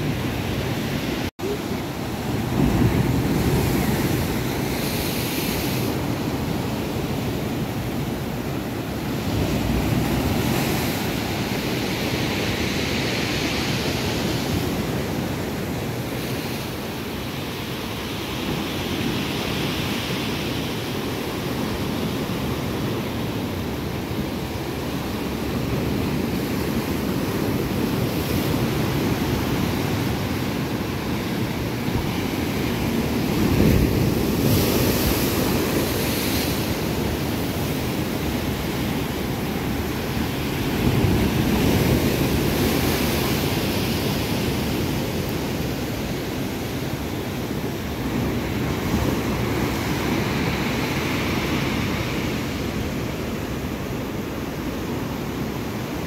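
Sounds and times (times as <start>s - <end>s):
sea waves breaking on rocks: 0.3s - 16.8s, 24.7s - 53.0s.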